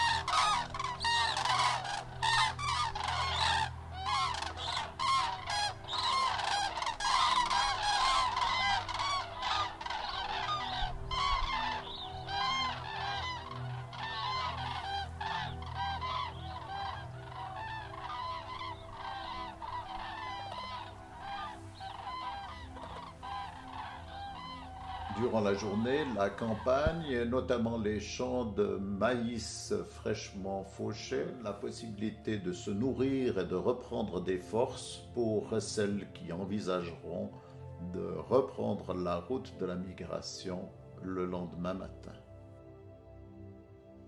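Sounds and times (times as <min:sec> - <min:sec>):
cranes calling: 0:00.0 - 0:27.1.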